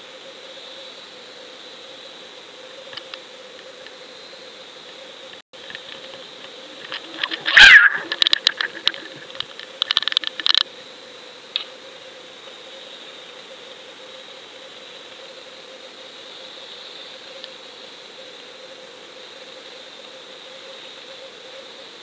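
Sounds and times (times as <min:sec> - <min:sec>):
sharp clicks: 0:06.8 - 0:10.6
loud squeak falling in pitch: 0:07.5 - 0:08.1.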